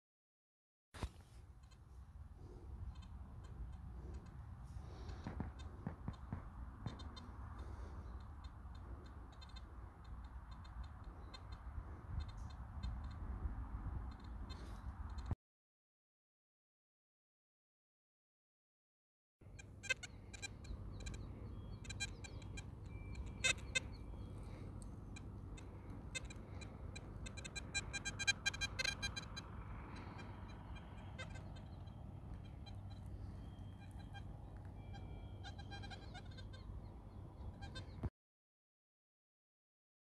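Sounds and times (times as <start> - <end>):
wind rumbling on microphone: 1.5 - 15.4
high-pitched chirps and clicks: 8.2 - 13.2, 19.8 - 36.7.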